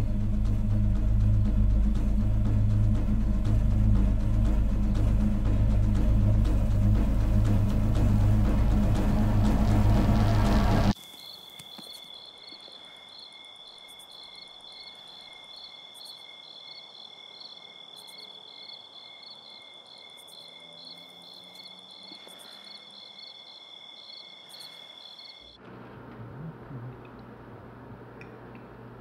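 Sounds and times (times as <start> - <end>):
low steady hum: 0.0 - 11.0, 25.6 - 29.0
insects chirping in pulses: 10.9 - 25.6
crickets trilling: 11.0 - 25.6.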